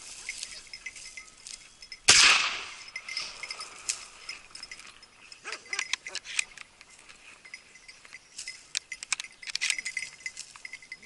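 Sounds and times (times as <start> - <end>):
light metallic clinking: 0.0 - 11.0
shotgun shot with echo: 2.1 - 2.8.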